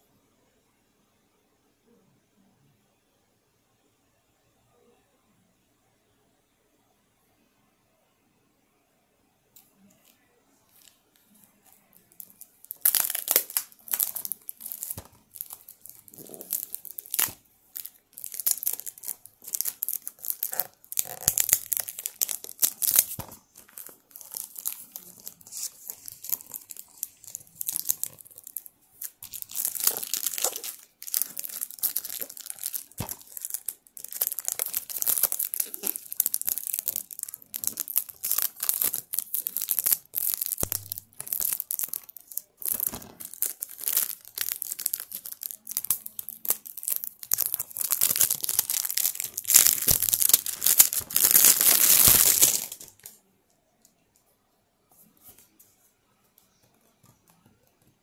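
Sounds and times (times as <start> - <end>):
plastic shrink wrap crinkling: 10.7 - 53.2.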